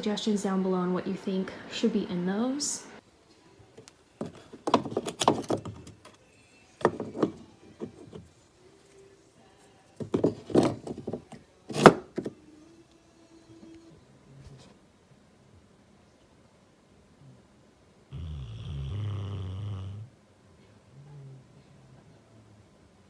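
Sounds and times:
wooden blocks knocking: 6.8 - 8.0.

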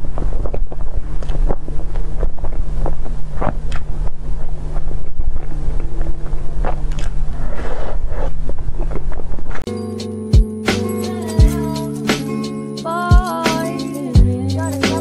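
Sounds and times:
microphone hum and rumble: 0.0 - 9.6
chewing and wet mouth smacks: 0.2 - 3.9, 4.8 - 7.2.

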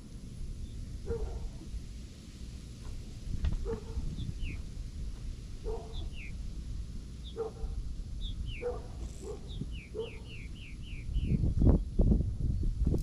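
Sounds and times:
dog barking: 1.0 - 1.6, 3.6 - 4.1, 5.6 - 6.1, 7.4 - 7.8, 8.6 - 10.3
bird chirping: 3.6 - 4.7, 5.6 - 6.4, 7.2 - 11.9.

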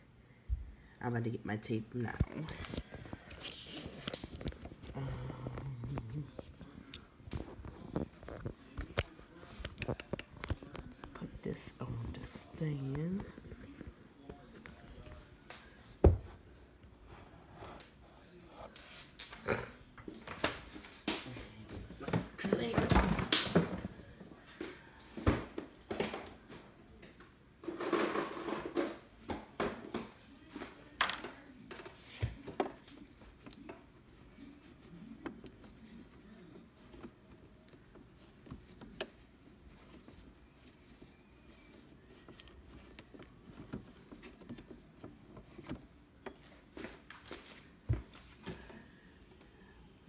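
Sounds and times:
rustling: 30.4 - 49.5.

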